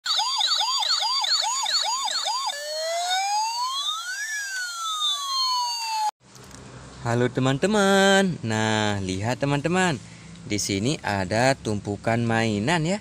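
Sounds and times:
electronic siren: 0.0s - 6.2s.

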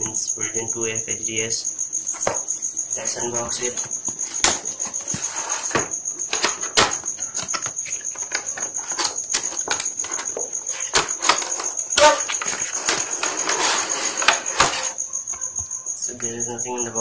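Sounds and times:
cardboard sliding and rustling: 3.7s - 15.0s
plastic packaging clicks and crinkles: 5.7s - 15.0s.

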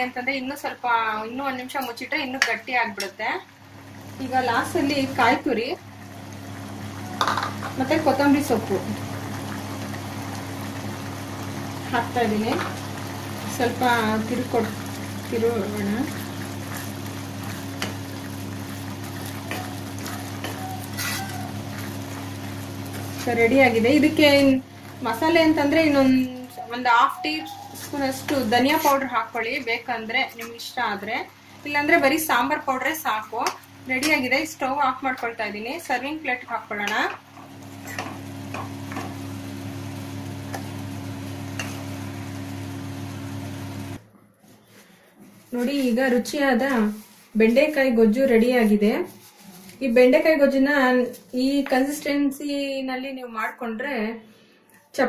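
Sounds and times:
spoon stirring thick food: 16.0s - 23.5s.

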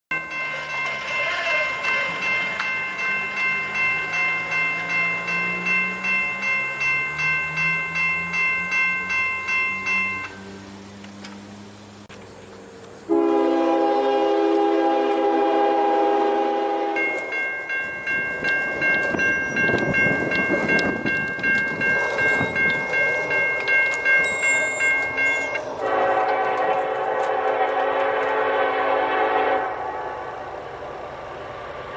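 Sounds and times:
railroad crossing bell ringing: 0.1s - 10.7s, 15.0s - 29.9s
rumble of passing train: 0.1s - 31.9s
locomotive air horn chord: 13.1s - 17.2s, 25.8s - 30.4s.

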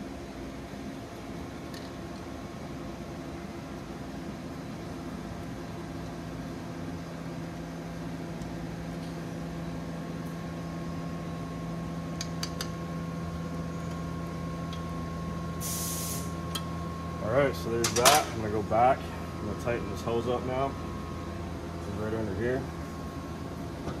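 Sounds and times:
fan humming: 0.0s - 24.0s.

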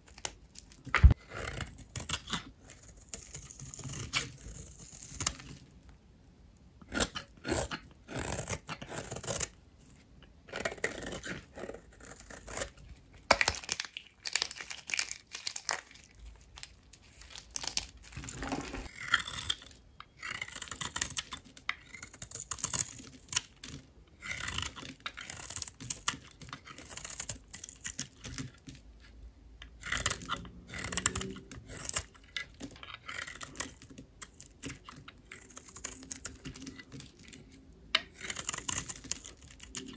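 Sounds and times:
soap crackling and crunching: 0.0s - 5.9s, 10.5s - 39.9s.

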